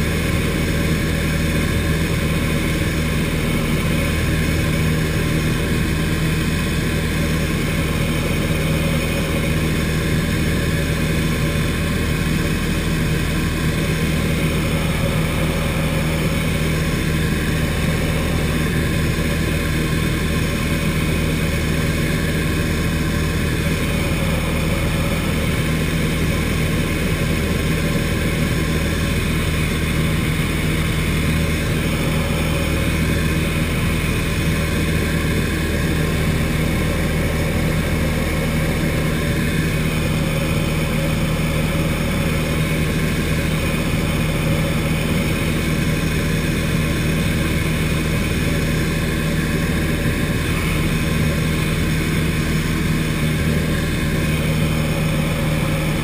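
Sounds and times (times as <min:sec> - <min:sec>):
light aircraft engine and propeller: 0:00.0 - 0:56.0.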